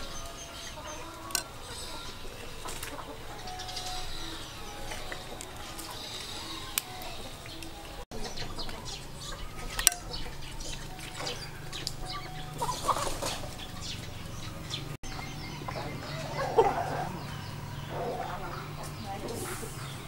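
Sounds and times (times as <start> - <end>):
chickens calling: 0.0 - 20.0
small birds chirping: 0.0 - 20.0.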